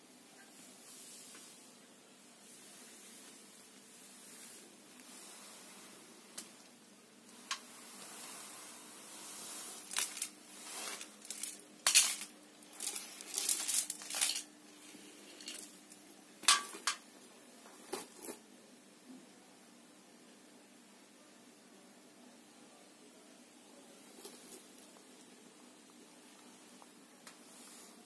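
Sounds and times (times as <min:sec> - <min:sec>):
beads clattering on tiled floor: 0:07.3 - 0:17.0.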